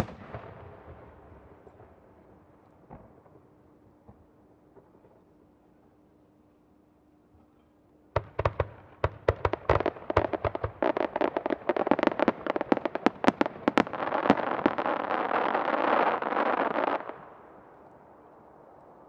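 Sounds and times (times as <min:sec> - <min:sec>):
firework crackling: 0:00.0 - 0:00.4, 0:08.2 - 0:17.6.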